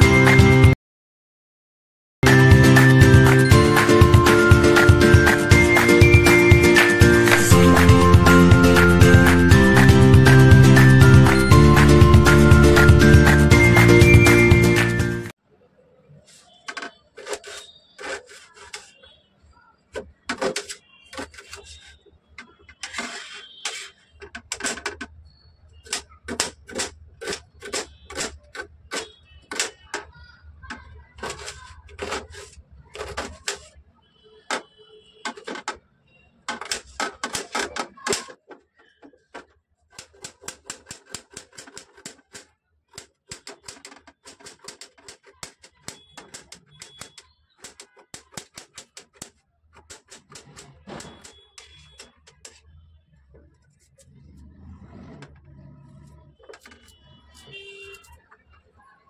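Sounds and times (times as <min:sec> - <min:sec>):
knife chopping onion: 0:40.0 - 0:52.6.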